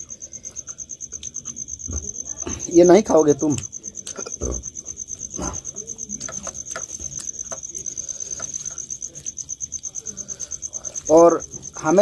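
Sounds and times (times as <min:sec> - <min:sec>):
cricket chirping: 0:00.0 - 0:12.0.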